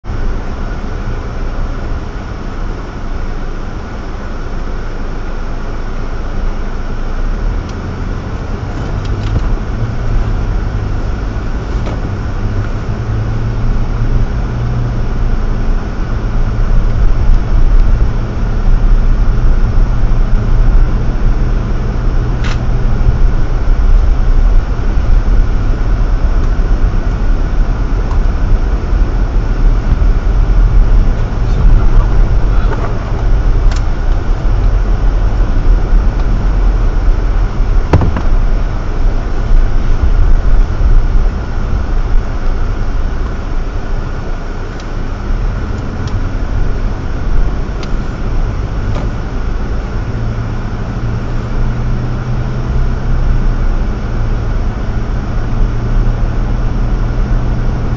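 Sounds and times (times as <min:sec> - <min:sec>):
engine and tyre rumble on snow: 0:00.0 - 0:57.9.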